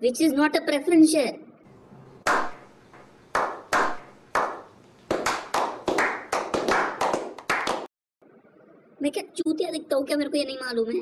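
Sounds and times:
men slow clapping: 0:01.7 - 0:07.9.

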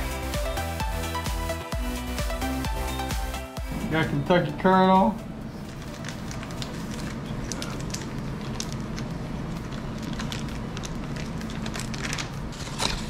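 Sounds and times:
gas burner rumble: 0:03.6 - 0:13.0
oil crackling pops: 0:05.8 - 0:13.0.

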